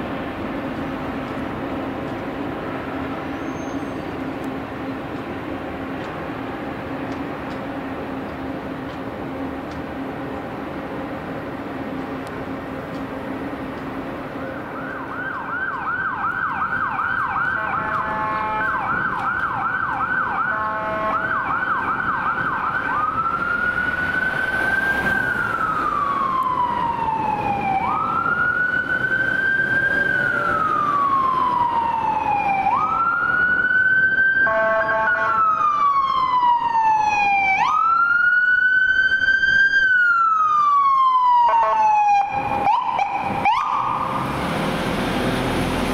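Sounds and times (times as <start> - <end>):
ambulance siren yelp and wail: 14.4 - 44.3
horn blasts: 17.4 - 18.9, 20.4 - 21.4, 34.4 - 35.4.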